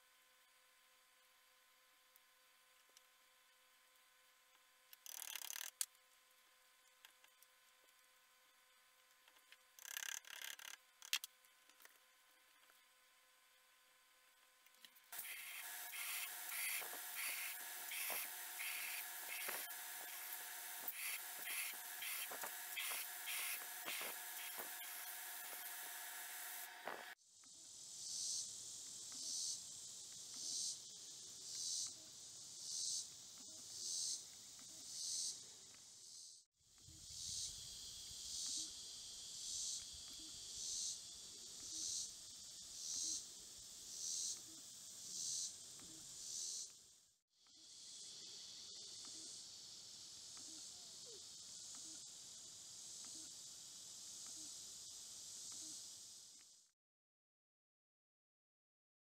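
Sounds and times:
insects calling: 0:09.8 - 0:11.2, 0:15.1 - 0:46.8, 0:47.4 - 0:56.4
belt grinder running: 0:15.2 - 0:27.2.

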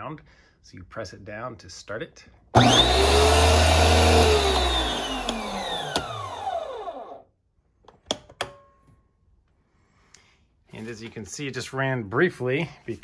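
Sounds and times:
motor spinning down whine: 0:02.6 - 0:07.2
pressure washer motor humming: 0:02.6 - 0:07.2.

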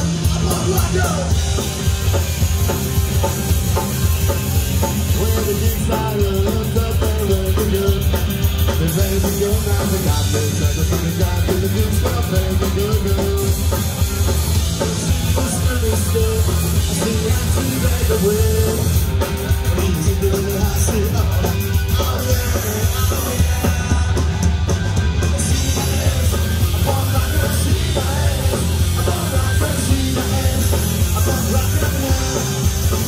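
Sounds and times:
person singing lead vocal: 0:00.0 - 0:01.6, 0:04.8 - 0:14.0, 0:15.1 - 0:24.5, 0:25.3 - 0:33.0
drum kit: 0:00.0 - 0:33.0
electric guitar: 0:00.0 - 0:33.0.

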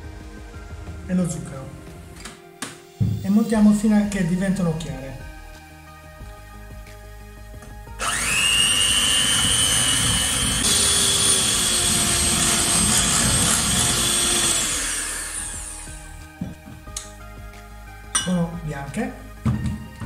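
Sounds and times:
electric hand mixer whining: 0:08.0 - 0:16.4.

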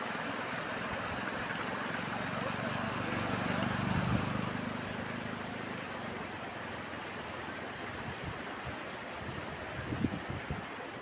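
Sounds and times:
water splashing: 0:00.0 - 0:07.9
motorcycle engine passing: 0:01.7 - 0:06.9.

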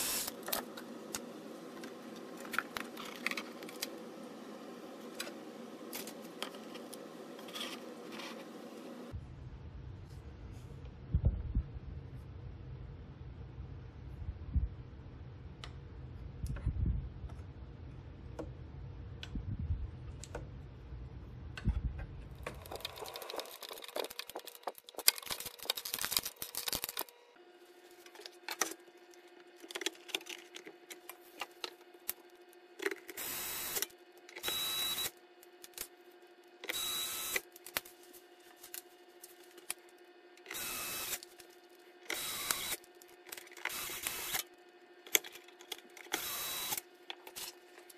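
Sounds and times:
cordless screwdriver running: 0:40.5 - 0:41.3, 0:42.1 - 0:42.9, 0:43.6 - 0:44.5, 0:46.1 - 0:46.8.

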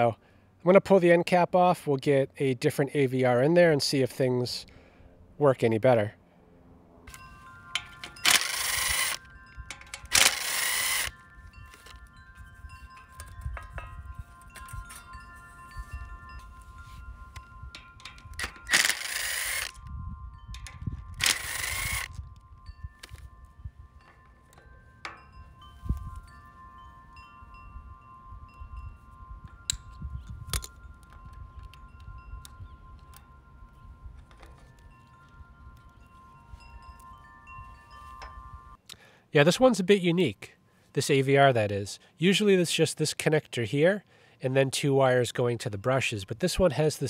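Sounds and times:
chime-like ringing tones: 0:07.0 - 0:38.8
sharp metallic clicks: 0:07.1 - 0:11.2, 0:17.4 - 0:23.2
cordless drill spinning screws: 0:07.8 - 0:11.2, 0:18.1 - 0:19.9, 0:20.6 - 0:22.3.

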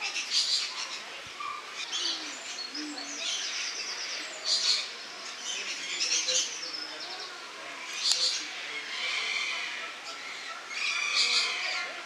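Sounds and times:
parrots screeching: 0:10.7 - 0:11.9.

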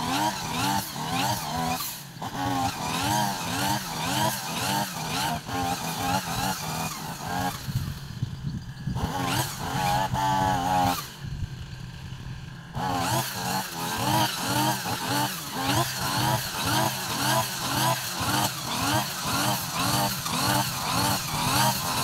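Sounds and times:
brush cutter engine revving: 0:00.0 - 0:22.0.

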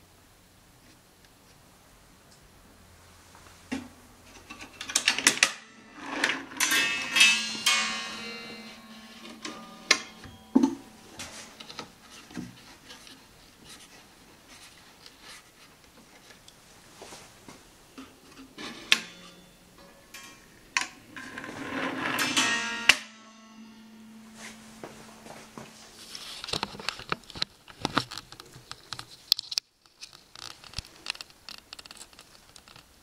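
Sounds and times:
ringing tone: 0:06.0 - 0:12.0, 0:21.2 - 0:26.0.

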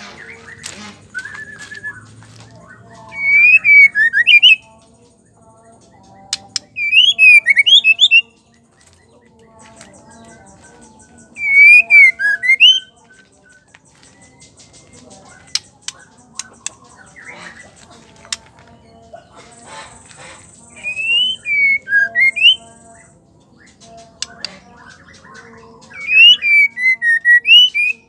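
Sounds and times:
bird singing whistled phrases: 0:00.1 - 0:02.1, 0:02.7 - 0:04.7, 0:06.7 - 0:08.4, 0:11.4 - 0:12.9, 0:20.7 - 0:22.7, 0:24.2 - 0:28.0.

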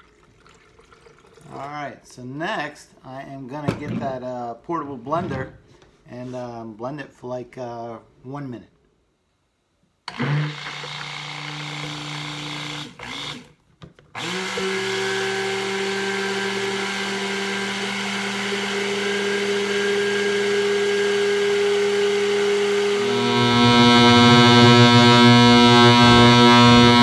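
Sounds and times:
immersion blender motor hum: 0:10.1 - 0:13.5, 0:14.1 - 0:27.0.

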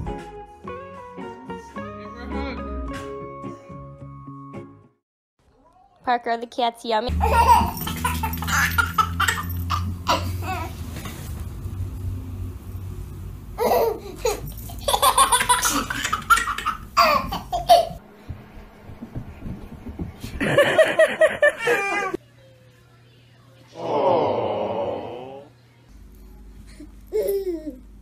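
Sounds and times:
baby laughing: 0:07.1 - 0:10.7, 0:13.6 - 0:18.0, 0:20.6 - 0:22.2, 0:27.1 - 0:27.9
steady low hum: 0:11.4 - 0:21.6.

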